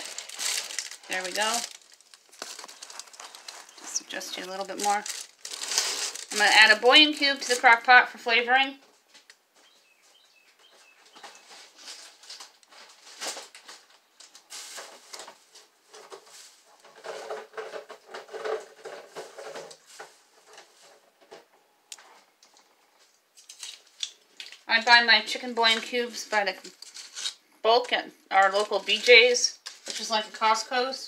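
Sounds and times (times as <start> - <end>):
packaging rustling and crinkling: 0.0 - 7.8, 11.1 - 21.0, 22.5 - 25.0, 25.6 - 27.4, 28.4 - 30.4.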